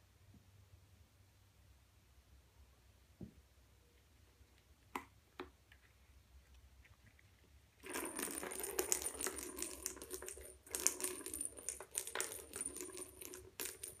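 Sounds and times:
toy ball rolling on hard floor: 0:07.8 - 0:14.0.

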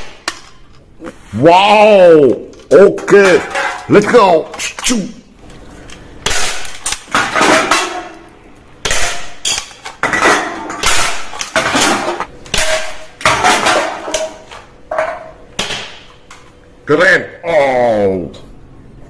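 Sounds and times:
hard toy parts clattering: 0:02.5 - 0:08.3, 0:08.9 - 0:15.3.

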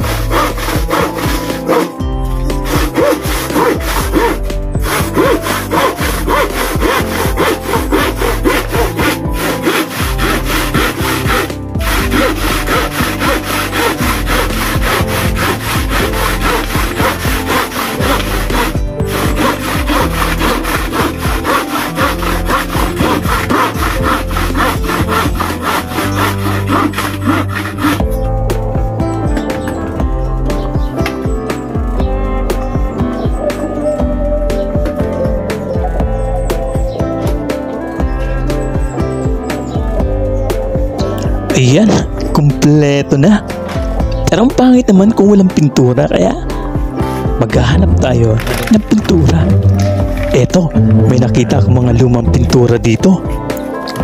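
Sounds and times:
handsaw cutting plywood: 0:00.0 - 0:28.3, 0:47.7 - 0:51.2
background music: 0:00.0 - 0:54.0.

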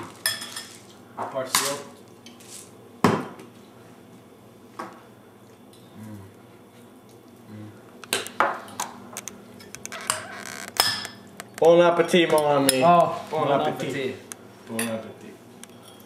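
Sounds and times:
tableware clinking and knocking: 0:09.6 - 0:11.2.

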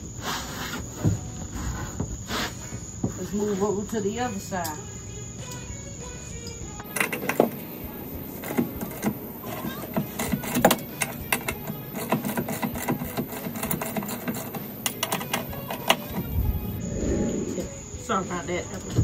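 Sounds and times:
socket wrench ratcheting: 0:06.8 - 0:07.7, 0:08.4 - 0:16.4.

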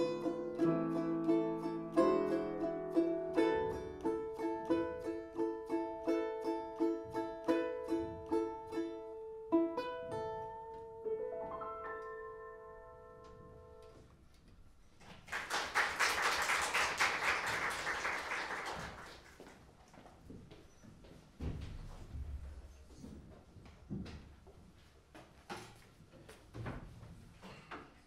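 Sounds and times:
plucked string instrument: 0:00.0 - 0:12.3
piano chords: 0:00.0 - 0:14.2
audience applause: 0:15.2 - 0:19.6.

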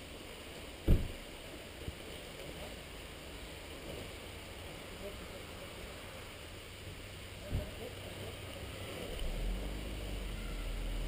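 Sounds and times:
wind-like outdoor noise: 0:00.0 - 0:11.0
dull thump: 0:00.8 - 0:01.2.

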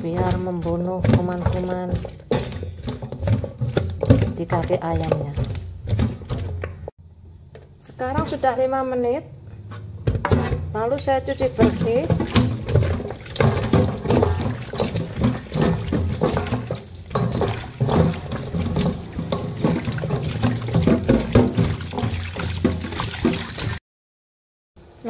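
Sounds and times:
tap water running into steel sink: 0:11.3 - 0:23.8.

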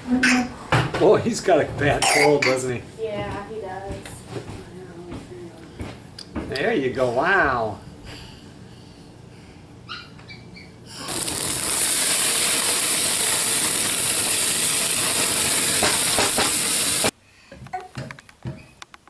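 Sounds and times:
patties sizzling on a grill: 0:10.9 - 0:17.1.

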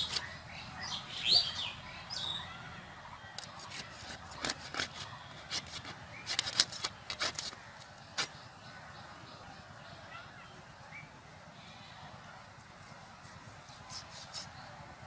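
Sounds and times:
high bird calls: 0:00.0 - 0:03.3
blade cutting raw chicken: 0:03.4 - 0:07.6.

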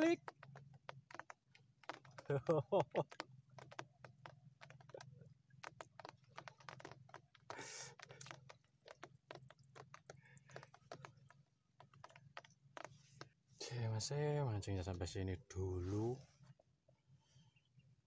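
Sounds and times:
handling clicks and rustles: 0:00.0 - 0:13.4.

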